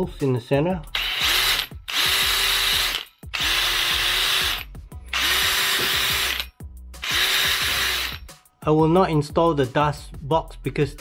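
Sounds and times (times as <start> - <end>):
cordless drill boring into wood: 0.9 - 8.2.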